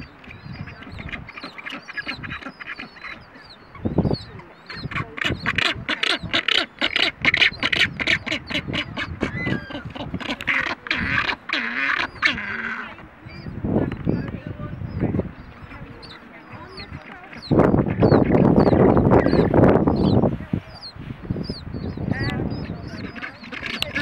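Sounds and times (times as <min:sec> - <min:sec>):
penguins calling harshly: 0:04.7 - 0:13.4, 0:22.1 - 0:24.0.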